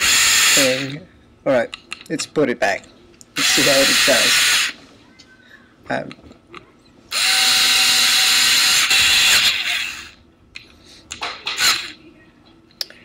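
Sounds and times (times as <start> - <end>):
electric screwdriver running: 0.0 - 1.0, 3.4 - 4.8, 7.1 - 10.2, 11.6 - 11.9.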